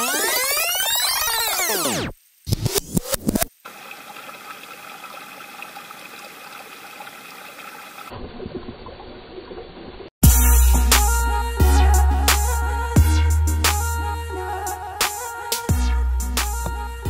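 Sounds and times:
electronic music with heavy bass: 0:00.0 - 0:03.4, 0:10.2 - 0:17.0
stream trickling over stones: 0:03.6 - 0:10.1.

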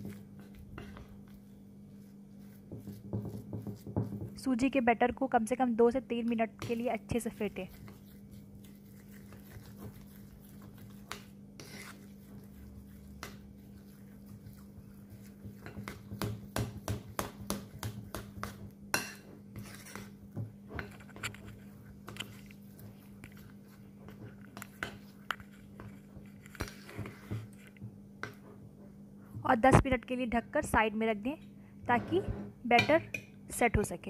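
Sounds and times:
fork beating batter in bowl: 0:00.0 - 0:04.8, 0:06.0 - 0:28.6.

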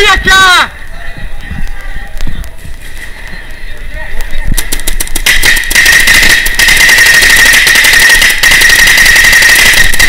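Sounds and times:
paintball marker rapid pops: 0:04.2 - 0:10.0.

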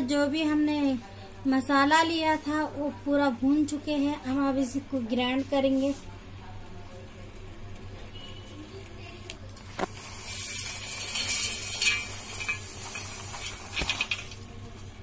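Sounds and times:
nuts and seeds pouring: 0:10.0 - 0:14.4.

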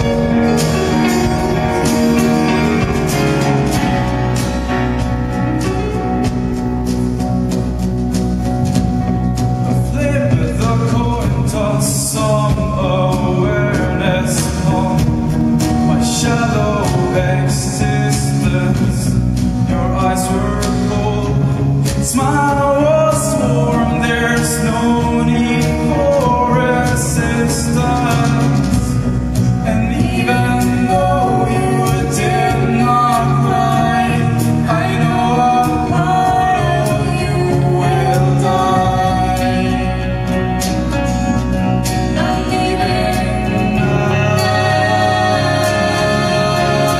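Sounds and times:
drums and cymbals: 0:00.0 - 0:46.9
person singing: 0:09.7 - 0:46.9.

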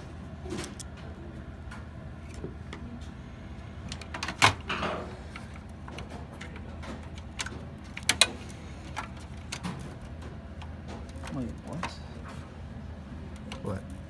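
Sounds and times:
plastic parts clicking: 0:03.9 - 0:12.0.

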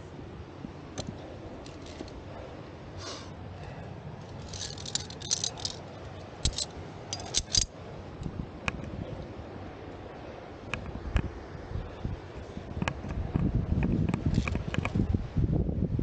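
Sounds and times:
climbing gear clinking: 0:01.0 - 0:02.2, 0:04.3 - 0:07.7.

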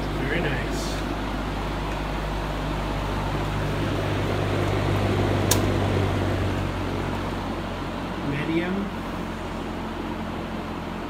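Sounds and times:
box fan running: 0:00.0 - 0:11.0
sharp click: 0:05.5 - 0:05.7.

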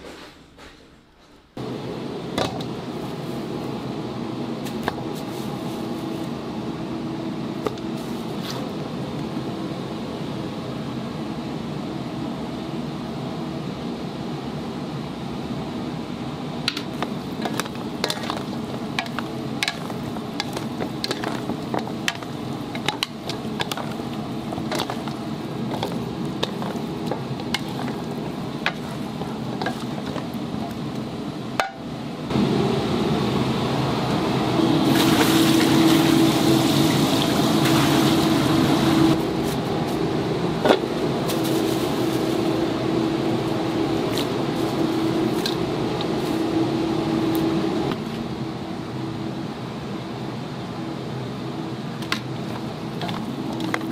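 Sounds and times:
oil bubbling and sizzling: 0:16.7 - 0:31.9, 0:34.6 - 0:39.2.

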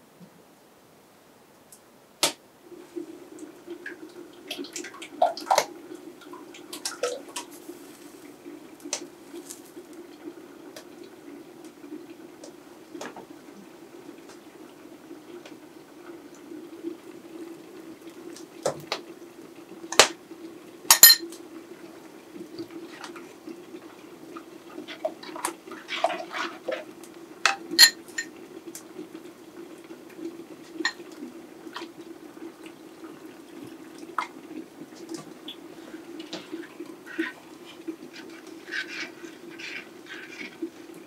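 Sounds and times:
glass and metal clinks: 0:21.0 - 0:21.2.

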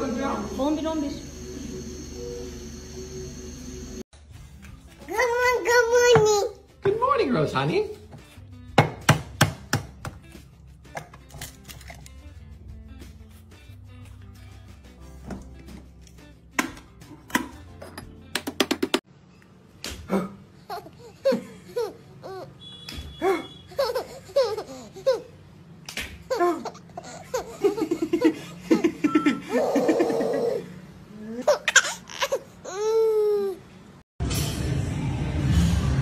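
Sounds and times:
baby laughing: 0:20.6 - 0:22.6, 0:23.7 - 0:25.4, 0:26.2 - 0:33.6.

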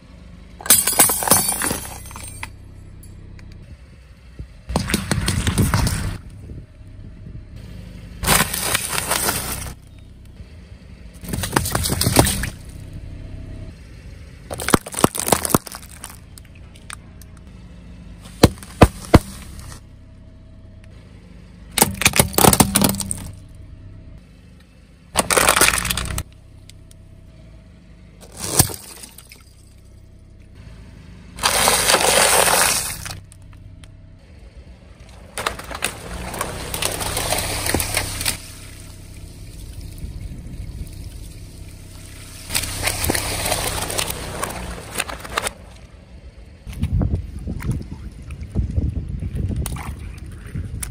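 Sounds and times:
tyre crushing objects: 0:08.2 - 0:09.8, 0:11.2 - 0:12.6, 0:14.5 - 0:16.2, 0:18.3 - 0:19.8, 0:21.8 - 0:23.4, 0:31.4 - 0:33.3, 0:35.4 - 0:38.4
plastic sunglasses breaking: 0:14.5 - 0:16.4, 0:25.2 - 0:26.2
water balloons bursting: 0:35.4 - 0:38.8, 0:42.1 - 0:45.5.

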